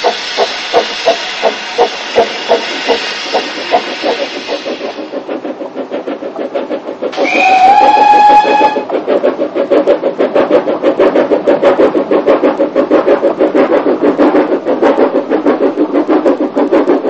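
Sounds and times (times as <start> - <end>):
steam engine chuffing: 0.0 - 17.0
steam whistle blast: 7.2 - 8.9.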